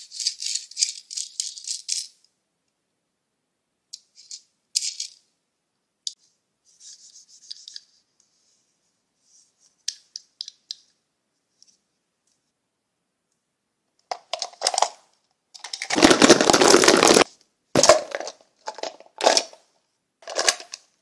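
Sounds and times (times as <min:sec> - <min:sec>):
plastic toy figures rattling: 0:00.0 - 0:02.2, 0:04.1 - 0:05.2, 0:14.1 - 0:20.9
soft rustle: 0:06.1 - 0:09.9.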